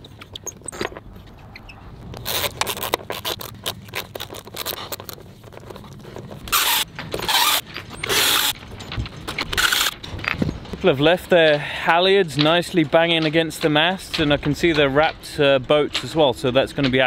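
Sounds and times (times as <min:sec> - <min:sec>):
cordless drill bursts: 0:06.5 - 0:08.5, 0:09.6 - 0:10.0.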